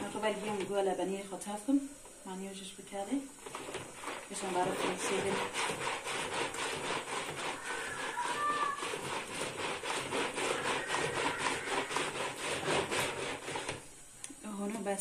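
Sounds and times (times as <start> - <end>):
plunger mixer swishing liquid: 3.5 - 13.8.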